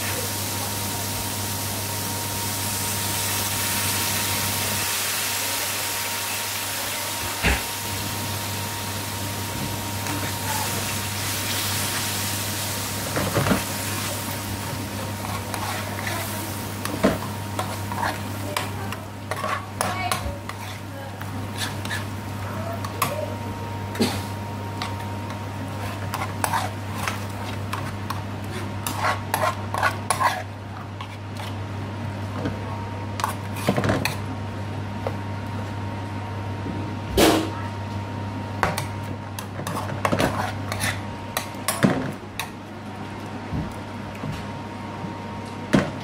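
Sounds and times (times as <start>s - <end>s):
soft sizzle: 0.0s - 32.2s
metal spoon scraping a pan: 15.2s - 22.1s, 25.7s - 31.5s, 39.6s - 41.0s.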